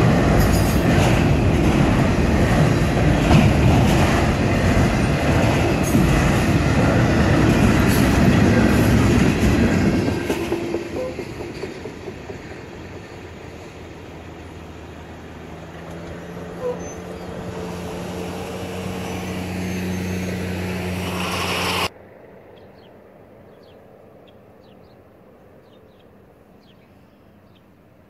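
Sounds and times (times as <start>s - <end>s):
vehicle engine humming: 1.2s - 22.0s.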